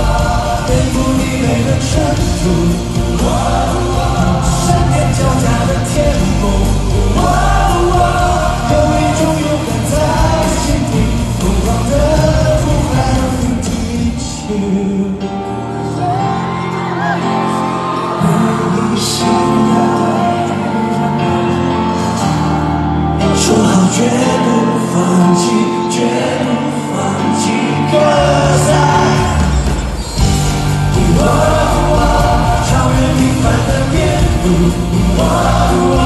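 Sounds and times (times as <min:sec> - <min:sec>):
live band playing: 0:00.0 - 0:36.0
man singing pop song live: 0:00.0 - 0:36.0.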